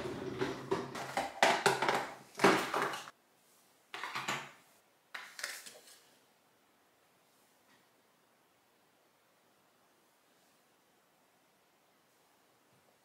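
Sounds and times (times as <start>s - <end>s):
plastic items clattering: 0.0s - 3.1s.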